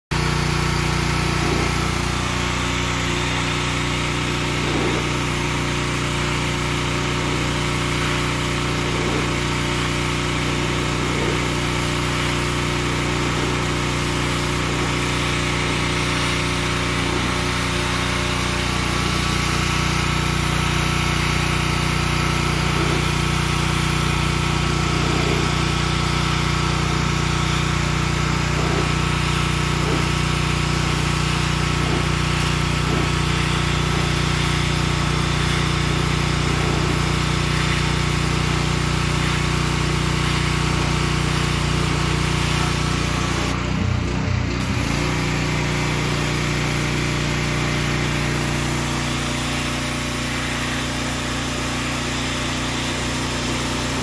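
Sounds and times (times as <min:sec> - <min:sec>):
pressure washer engine running: 0:00.1 - 0:54.0
water jet spraying on bricks: 0:00.1 - 0:54.0.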